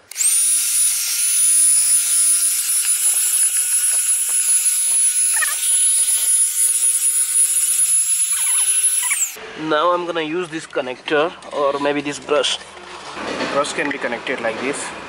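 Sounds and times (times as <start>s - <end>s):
handheld vacuum cleaner running: 0.0s - 9.4s.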